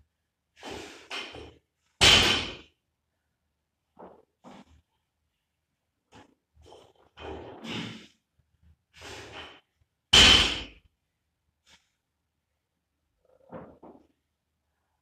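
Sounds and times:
barbell hitting floor: 2.0s - 2.6s, 10.2s - 10.8s.

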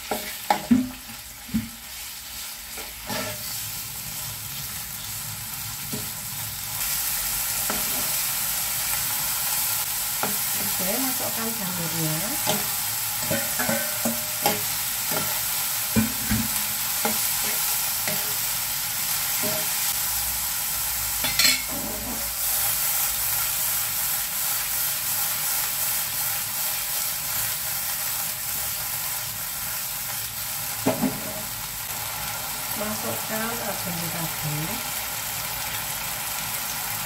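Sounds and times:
meat sizzling in a frying pan: 0.0s - 37.0s
metal spatula scraping a pan: 2.4s - 3.6s, 12.4s - 18.5s, 21.2s - 22.6s.

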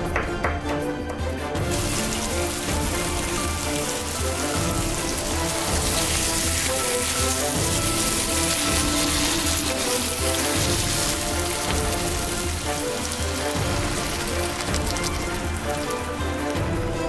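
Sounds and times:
background music: 0.0s - 17.0s
mushrooms sizzling in a frying pan: 1.6s - 17.0s.

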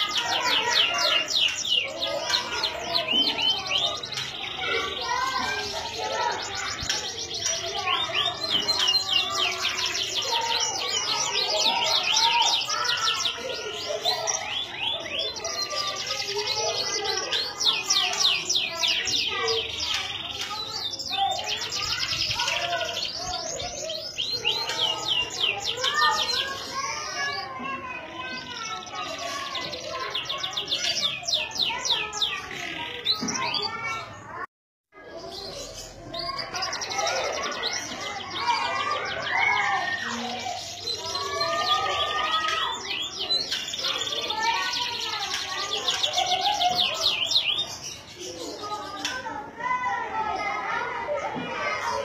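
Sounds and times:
canary singing: 0.0s - 33.8s, 35.0s - 49.2s.

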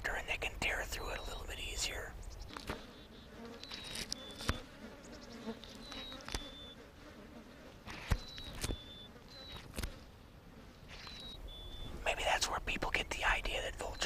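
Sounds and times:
flies buzzing: 0.0s - 14.0s.

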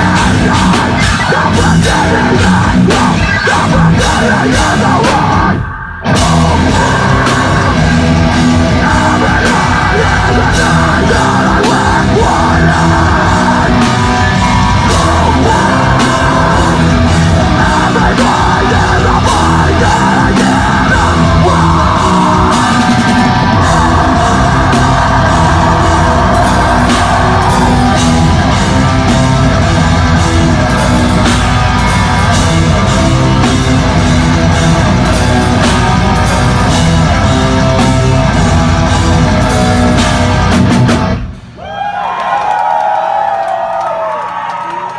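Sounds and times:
harsh screamed vocals: 0.0s - 32.3s, 41.6s - 44.9s
metal band playing live: 0.0s - 41.7s.

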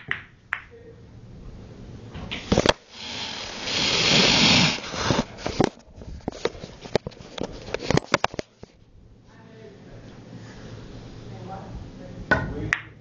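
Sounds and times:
camera handling rustle: 4.8s - 8.8s.

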